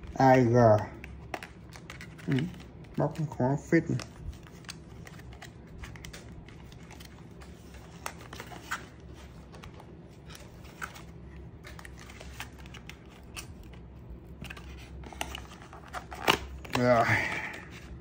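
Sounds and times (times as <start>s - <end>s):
packaging clicking and crinkling: 0.0s - 17.9s
low steady hum: 0.0s - 18.0s.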